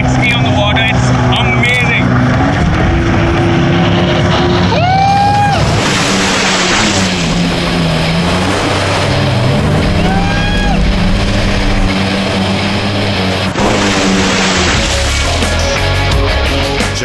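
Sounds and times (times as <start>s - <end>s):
jet ski engine: 0.0s - 17.0s
short rising tone: 2.0s - 16.9s
rush of spray: 5.6s - 10.2s, 10.8s - 15.9s.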